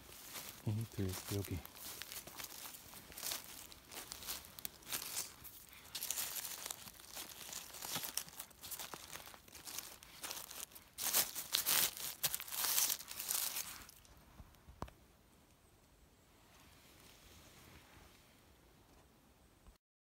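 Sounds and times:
dry leaves and twigs rustling: 0:00.0 - 0:14.6.

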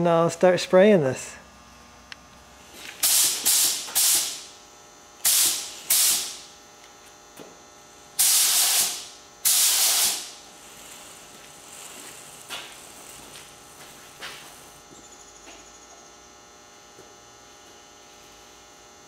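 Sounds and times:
spray gun air hissing: 0:02.8 - 0:04.6, 0:05.2 - 0:06.5, 0:08.1 - 0:14.8.

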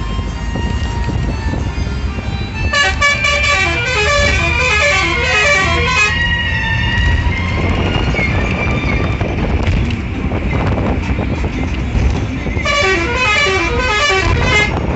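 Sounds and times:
bus engine rumble: 0:00.0 - 0:14.9
road noise: 0:00.0 - 0:14.9
musical vehicle horn: 0:02.6 - 0:06.3, 0:12.6 - 0:14.9.

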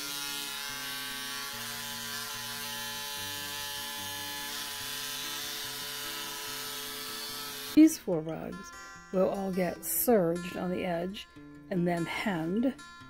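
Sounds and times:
electric motor buzzing hum: 0:00.0 - 0:07.8
background music: 0:00.0 - 0:13.0.

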